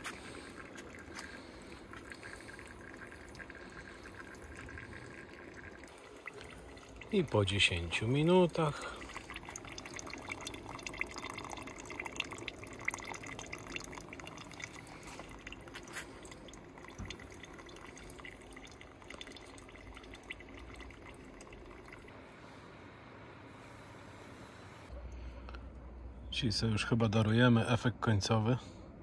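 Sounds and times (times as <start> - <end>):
water dripping into pot: 0.0 - 22.2.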